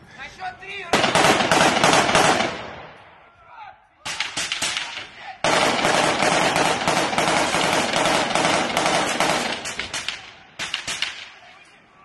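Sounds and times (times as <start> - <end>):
automatic gunfire: 0.9 - 2.9, 4.1 - 11.4.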